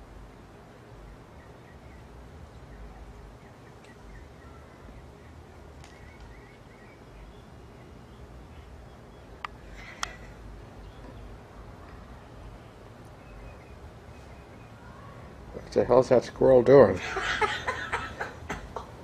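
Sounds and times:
faint bird chirps: 1.0 - 15.4.

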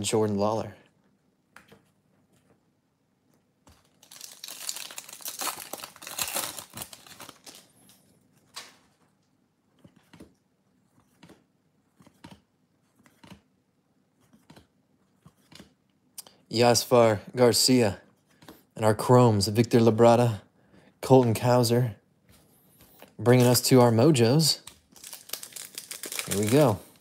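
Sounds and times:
foil wrapper tearing and crinkling: 3.9 - 7.7, 24.9 - 27.0.

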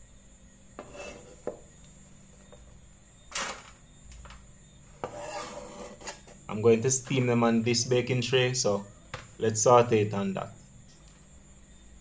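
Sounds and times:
knife scraping on cutting board: 0.8 - 1.6, 5.0 - 6.4.

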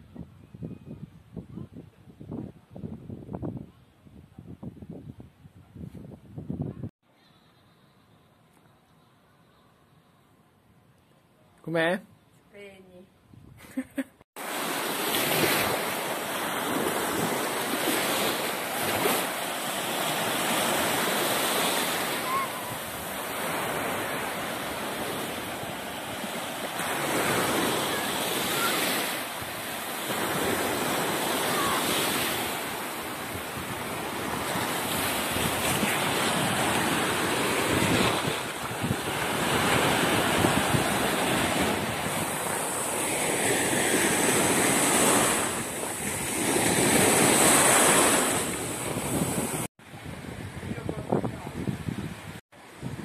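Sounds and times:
wind on microphone: 0.0 - 6.9, 15.1 - 53.0
small waves breaking on beach: 14.4 - 53.0.

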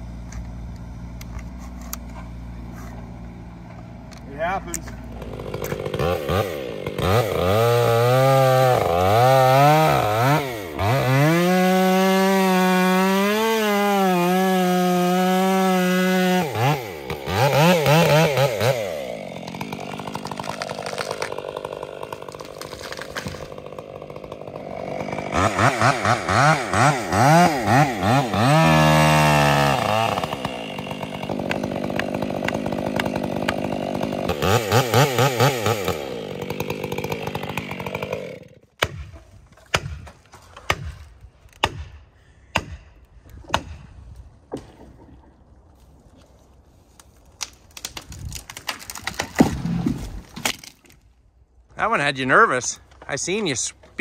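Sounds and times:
chainsaw revving: 1.9 - 38.7.

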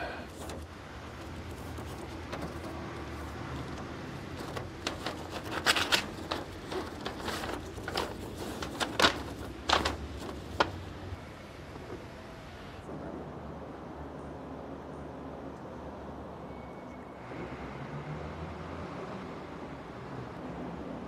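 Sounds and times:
sharp clicks and rustles: 0.3 - 11.1.

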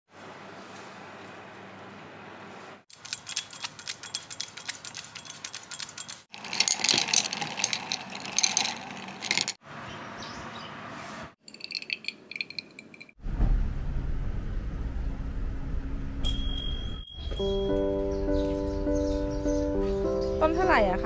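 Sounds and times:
ice cubes clinking in glass: 3.0 - 9.6, 11.4 - 13.1.

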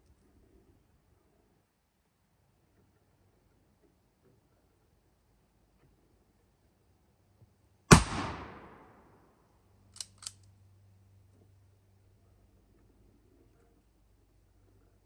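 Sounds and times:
rifle shot with echo: 7.9 - 9.2.

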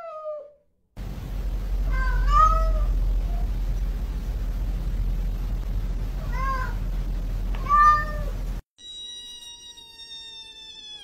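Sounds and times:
kitten long high meow: 0.0 - 0.5, 1.9 - 3.4, 7.6 - 8.3, 9.1 - 11.0
low hum: 1.0 - 8.6
cat meowing: 1.9 - 3.4, 7.6 - 8.3, 9.1 - 11.0.

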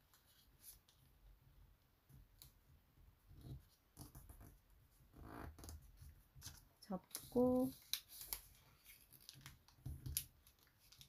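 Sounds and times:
paper rustling while folded: 5.9 - 11.0
soft paper clicks: 6.4 - 11.0.

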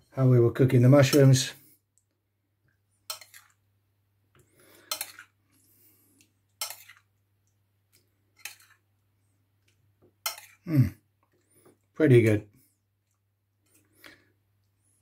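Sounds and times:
metal spoon clinking on ceramic bowl: 10.2 - 10.6.

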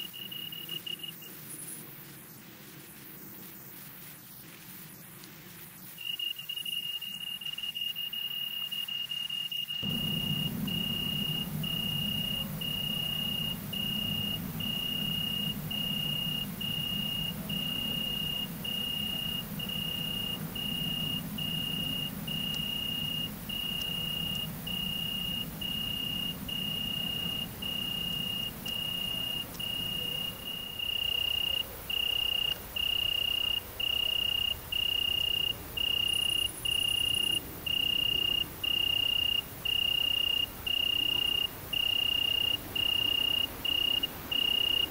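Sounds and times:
insect trilling: 6.0 - 44.9
low hum: 9.8 - 44.9.

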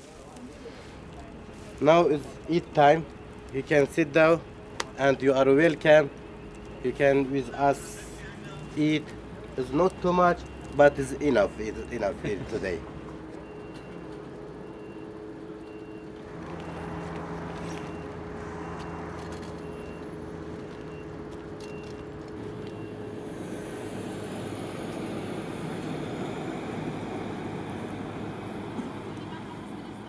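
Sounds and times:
traffic engine hum: 0.0 - 30.0
faint repeating beep: 14.6 - 16.9, 19.6 - 20.1
vehicle passing by: 16.2 - 30.0.

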